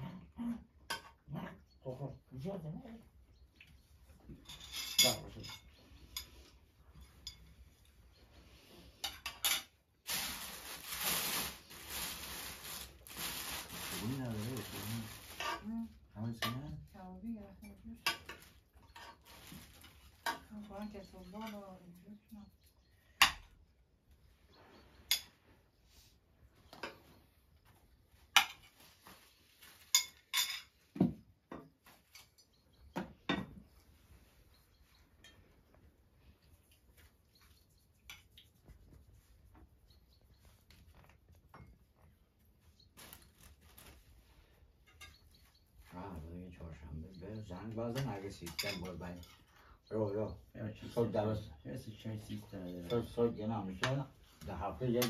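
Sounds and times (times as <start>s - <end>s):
cutlery clinking on plates: 4.3s - 8.0s, 29.8s - 33.7s, 44.8s - 45.8s, 47.8s - 49.5s
metal utensils clinking on plates: 4.3s - 8.0s, 17.6s - 21.8s, 29.8s - 30.9s, 44.8s - 50.2s
plastic bag rustling: 10.0s - 15.9s, 18.3s - 20.2s, 42.6s - 44.6s.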